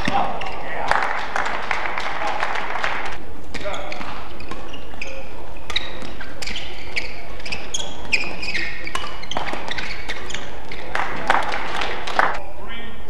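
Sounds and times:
shoes squeaking on court: 0.0 - 0.8, 3.5 - 11.6
racket hitting shuttlecock: 3.5 - 12.2.

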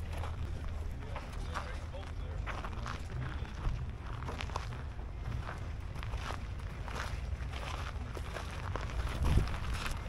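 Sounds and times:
footsteps on gravel: 0.0 - 10.0
low steady rumble: 0.0 - 10.0.

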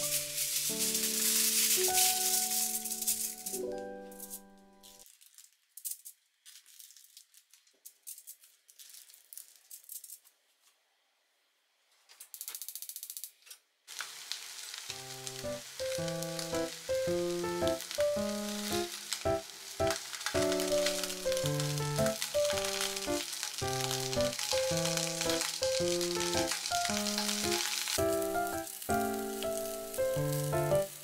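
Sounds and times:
fish sizzling in frying pan: 0.0 - 3.6, 13.9 - 31.0
background music: 15.0 - 31.0.

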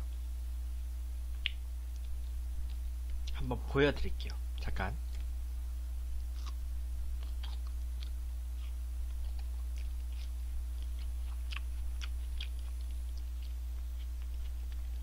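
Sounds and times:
steady low hum: 0.0 - 15.0
person chewing crunchy food: 6.2 - 15.0.

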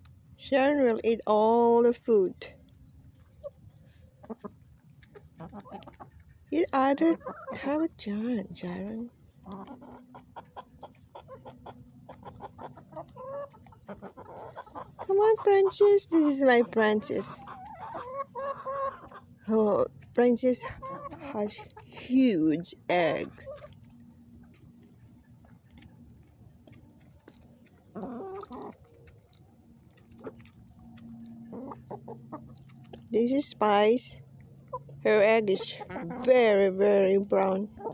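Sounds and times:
hens clucking: 2.1 - 37.9
faint pecking ticks: 2.6 - 7.7, 9.2 - 22.0, 23.4 - 33.3.

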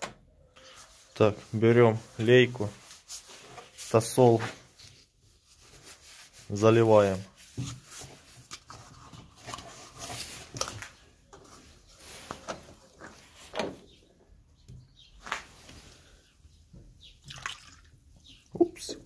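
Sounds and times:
cloth rag rustling: 0.8 - 8.8, 9.4 - 13.6.

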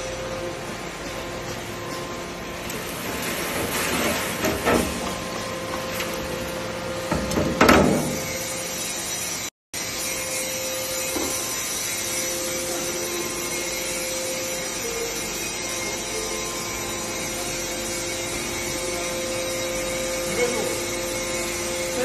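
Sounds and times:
extruder machine whirring: 0.0 - 22.0.

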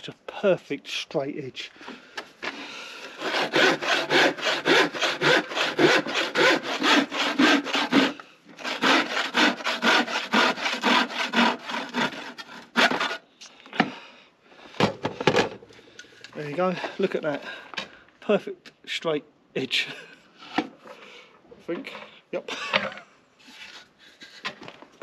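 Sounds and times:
handsaw cutting wood: 3.0 - 13.2.

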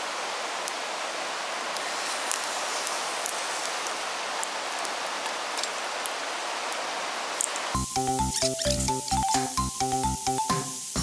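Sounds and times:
food sizzling in a pan: 1.4 - 11.0
sharp pops and spits: 8.3 - 9.6.

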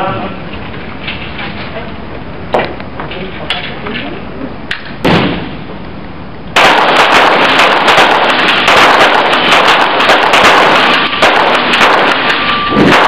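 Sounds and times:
rapid pistol shots echoing: 6.6 - 13.0.

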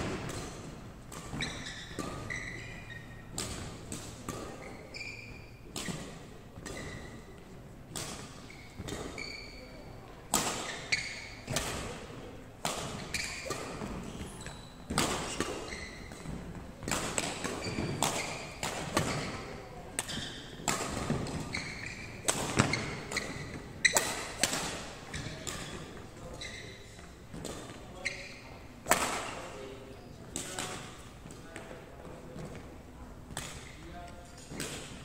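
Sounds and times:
rackets striking shuttlecock: 0.0 - 9.4, 12.6 - 26.0, 28.8 - 29.4
shoes squeaking on wooden floor: 1.2 - 3.3, 4.5 - 6.0, 6.7 - 7.4, 8.4 - 10.0, 13.0 - 24.3, 25.0 - 28.6.

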